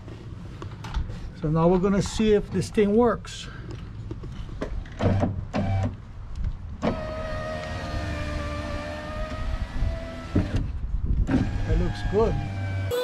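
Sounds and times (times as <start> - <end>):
window motor whining: 6.8 - 10.6, 11.3 - 12.9.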